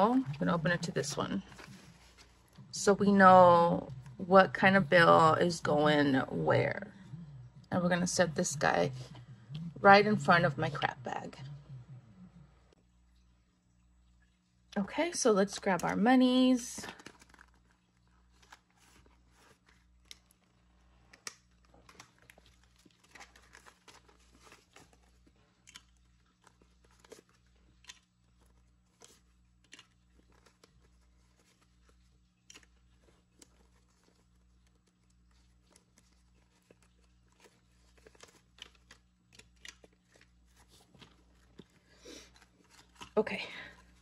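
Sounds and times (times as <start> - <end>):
paper bills rustling: 0.0 - 4.2, 15.6 - 44.0
low steady hum: 0.0 - 44.0.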